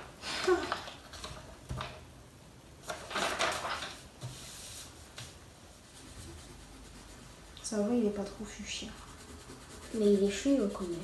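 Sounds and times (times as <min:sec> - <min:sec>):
markers rubbing on paper: 0:05.8 - 0:11.0.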